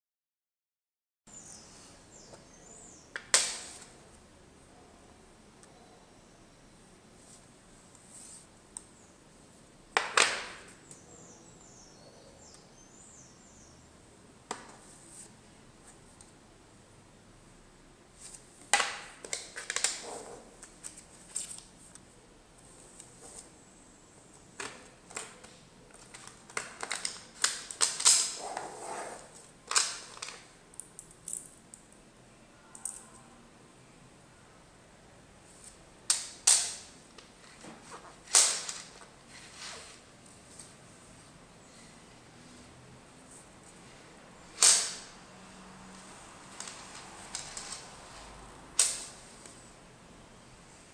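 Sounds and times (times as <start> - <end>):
magnet balls clicking together: 30.7 - 31.9.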